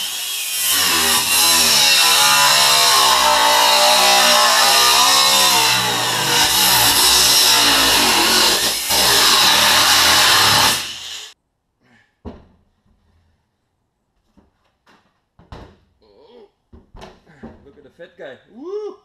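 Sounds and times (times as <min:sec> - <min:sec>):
angle grinder cutting metal: 0:00.0 - 0:11.4.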